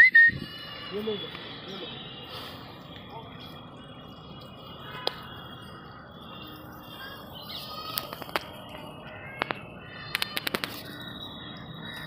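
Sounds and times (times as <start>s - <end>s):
birds chirping: 0.0s - 12.0s
sharp clicks: 9.3s - 11.0s.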